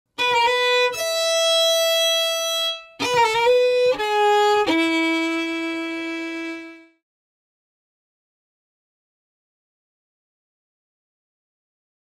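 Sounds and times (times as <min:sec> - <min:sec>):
solo violin: 0:00.1 - 0:07.0.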